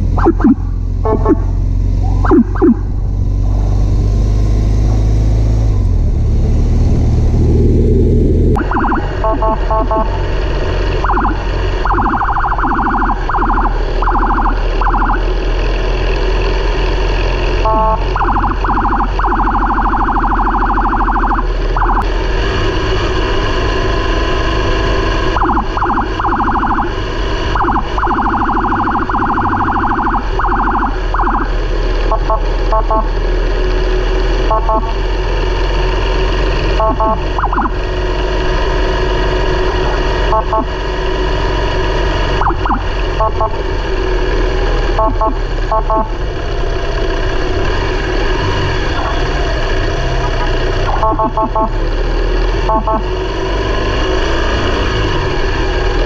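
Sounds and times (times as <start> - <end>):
fast-pulsing siren: 0.0 - 3.6, 8.6 - 15.8, 17.6 - 22.1, 23.8 - 33.3, 34.4 - 35.1, 36.7 - 38.2, 40.0 - 40.9, 41.6 - 44.0, 44.8 - 46.2, 50.2 - 52.0, 52.6 - 53.2
vehicle engine drone: 0.0 - 56.0.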